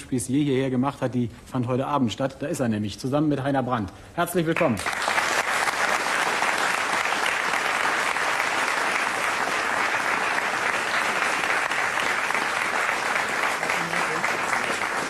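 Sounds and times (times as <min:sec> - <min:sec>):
audience applauding: 0:04.6 - 0:15.0.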